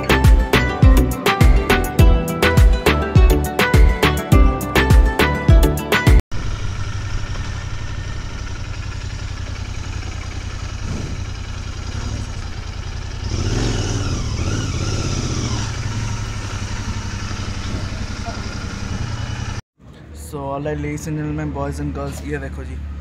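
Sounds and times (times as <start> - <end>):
motorcycle engine throbbing: 6.3 - 19.6.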